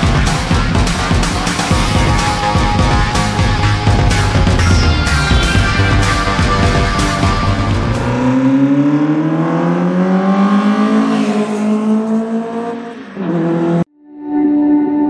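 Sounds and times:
car engine accelerating: 0.0 - 13.9.

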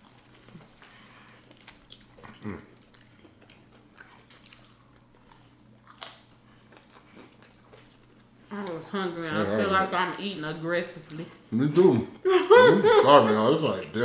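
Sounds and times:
chewing and biting fried food: 0.0 - 8.8.

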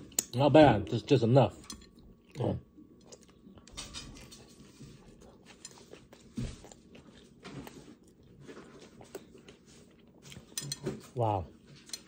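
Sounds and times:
person chewing food: 1.5 - 10.8.

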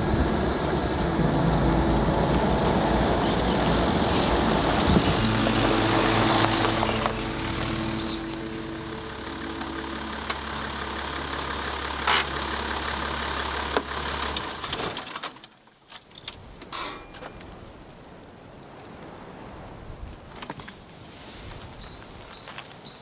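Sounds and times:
car engine humming: 0.0 - 14.8.

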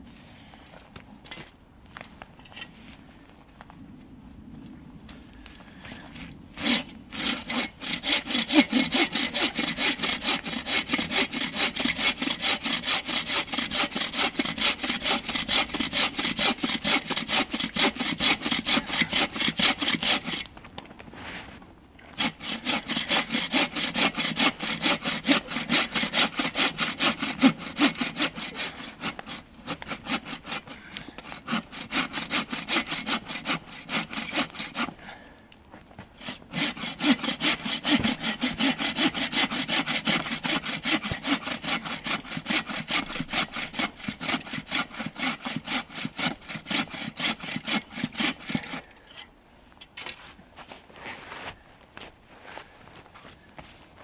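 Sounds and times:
hand saw cutting log: 6.2 - 20.5, 22.1 - 35.3, 36.2 - 49.0.

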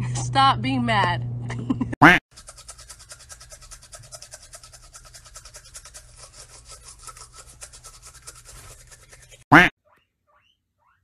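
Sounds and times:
toothbrush scrubbing: 2.3 - 9.6.

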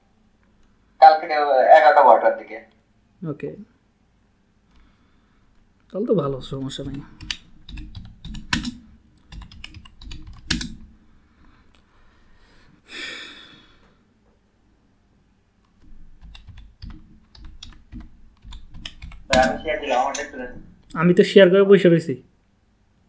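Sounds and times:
keyboard keystrokes: 6.4 - 10.8, 15.8 - 20.7.

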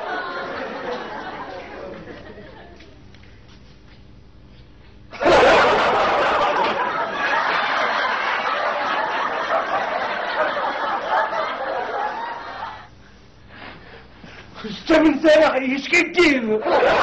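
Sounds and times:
laugh track audience laughter: 0.0 - 3.0, 5.1 - 12.9, 16.6 - 17.0.

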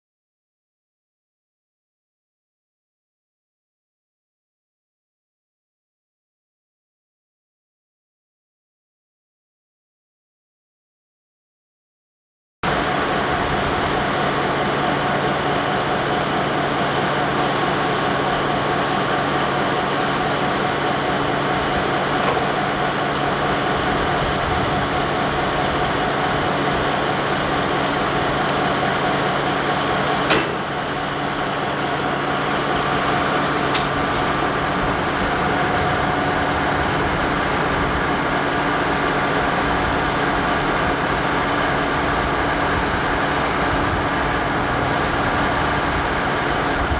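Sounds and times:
diesel locomotive engine idling: 12.7 - 46.9
sharp click: 33.7 - 34.0.

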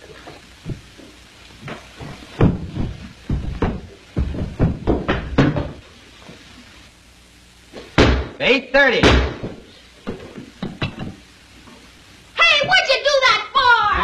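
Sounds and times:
ball bouncing down stairs: 1.6 - 5.8.

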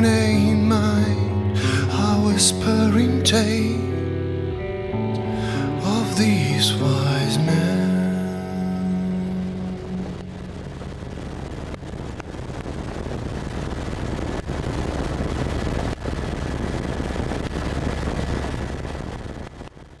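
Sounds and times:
helicopter cabin drone: 8.5 - 18.2.

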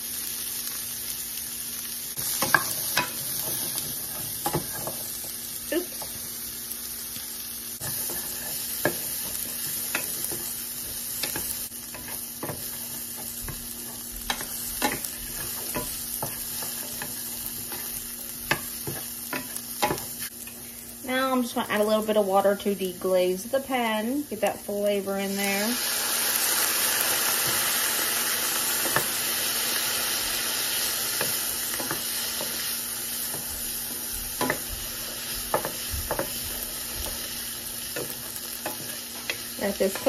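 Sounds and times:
vegetables sizzling in a skillet: 0.0 - 40.0
wooden spoon scraping a pan: 7.8 - 20.3.

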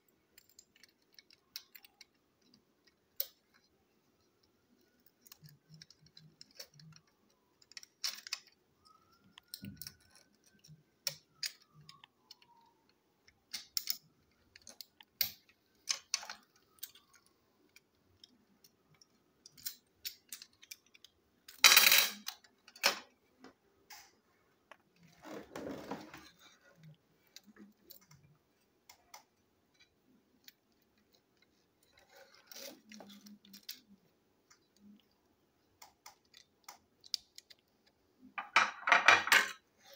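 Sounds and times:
plastic parts clicking: 0.1 - 24.1.

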